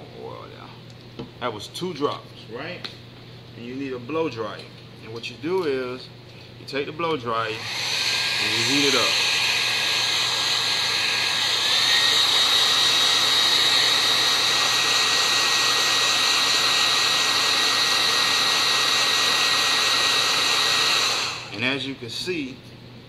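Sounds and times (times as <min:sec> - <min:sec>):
hair dryer running: 0:07.1 - 0:22.0.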